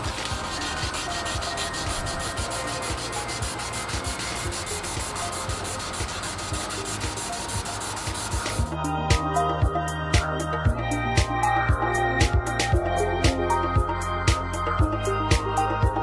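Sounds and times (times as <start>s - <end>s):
wet sandpaper rubbing plastic: 0.0s - 8.7s.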